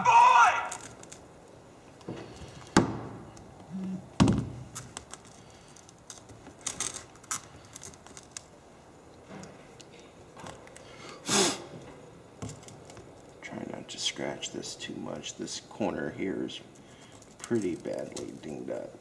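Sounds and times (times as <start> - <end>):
glass clicking and crackling: 0.7 - 1.6, 16.8 - 18.5.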